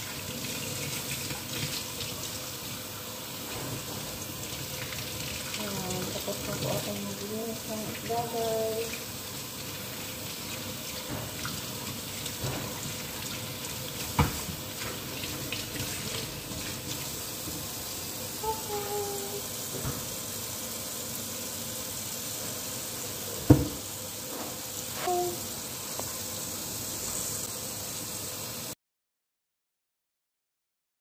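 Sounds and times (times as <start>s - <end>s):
tap running into sink: 10.9s - 18.0s, 19.6s - 20.2s, 23.3s - 24.6s.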